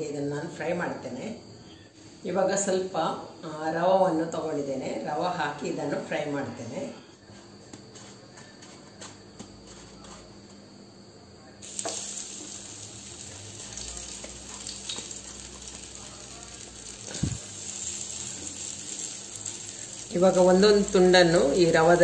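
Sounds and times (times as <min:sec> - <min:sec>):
food sizzling in hot oil: 0:11.6 - 0:22.0.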